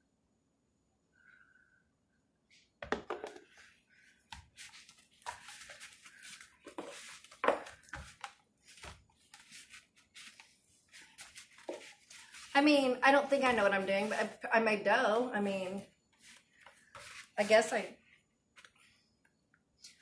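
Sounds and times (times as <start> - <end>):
hands kneading dough: 4.2 - 14.5, 15.1 - 19.0.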